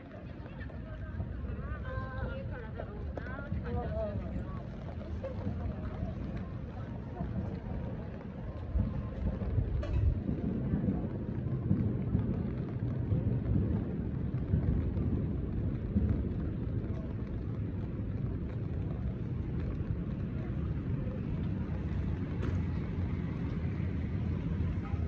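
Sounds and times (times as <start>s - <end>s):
low street noise rumble: 0.0s - 25.0s
car passing on wet road: 13.7s - 25.0s.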